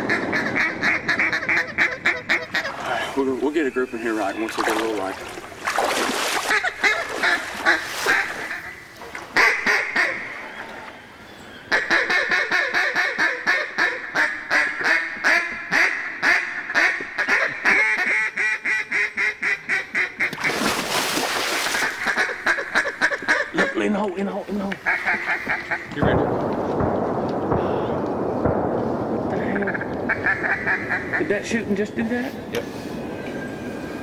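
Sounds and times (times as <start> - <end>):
duck quacking: 0.0 - 3.0, 6.5 - 8.8, 11.7 - 20.4, 21.9 - 23.9, 24.8 - 26.0, 29.6 - 31.3.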